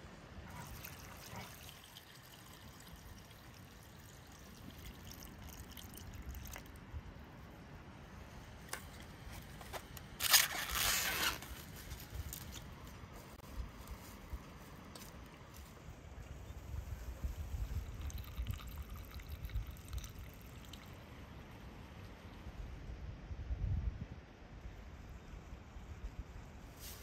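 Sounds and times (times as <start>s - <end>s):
water trickling into a pot: 0.5s - 6.8s, 17.6s - 21.0s.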